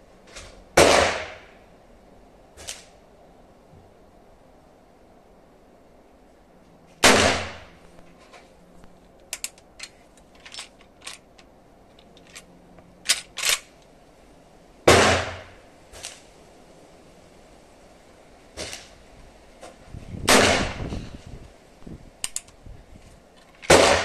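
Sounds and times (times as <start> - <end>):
rifle shots: 0.8 - 1.4, 7.0 - 7.7, 14.9 - 15.5, 20.3 - 20.8, 23.7 - 24.0
rifle action metallic clicks: 9.2 - 13.9, 22.2 - 22.6.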